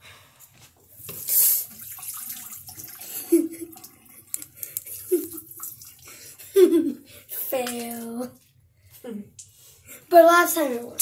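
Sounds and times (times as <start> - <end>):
water gushing and splashing: 1.1 - 6.2.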